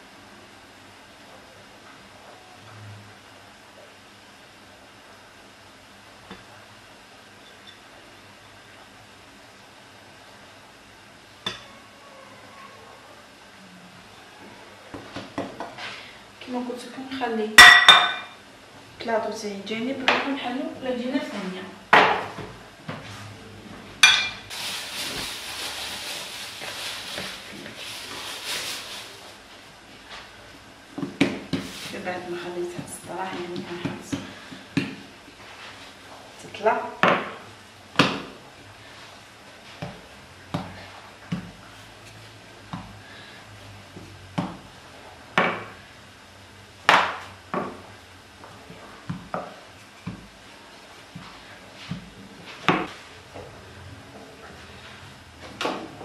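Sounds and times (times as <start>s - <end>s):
flour rustling on worktop: 24.5s - 30.4s, 31.4s - 34.5s.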